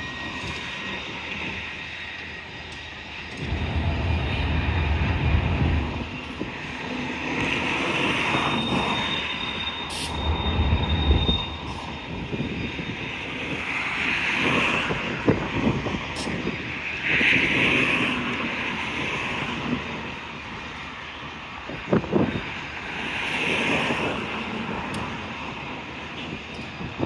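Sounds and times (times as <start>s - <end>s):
high wheel squeal: 0.0s - 15.0s
train cars rumbling past: 0.0s - 26.9s.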